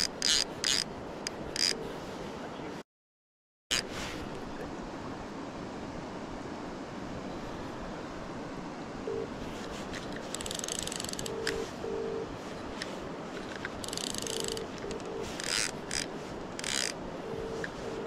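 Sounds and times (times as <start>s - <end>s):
fishing reel ratcheting: 0.0s - 0.9s, 1.6s - 1.8s, 10.3s - 11.4s, 13.8s - 14.6s, 15.4s - 17.0s
faint phone ringing tone: 9.1s - 9.4s, 11.2s - 12.3s, 14.2s - 15.4s, 17.2s - 18.0s.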